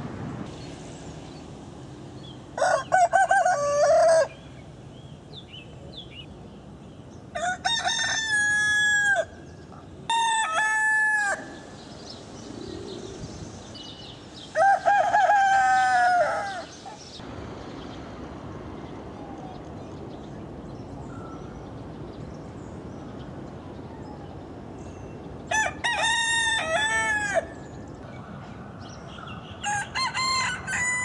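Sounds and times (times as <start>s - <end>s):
roosters crowing: 2.5s - 4.6s, 7.3s - 9.5s, 10.1s - 11.9s, 14.4s - 17.0s, 25.5s - 27.9s, 29.4s - 31.0s.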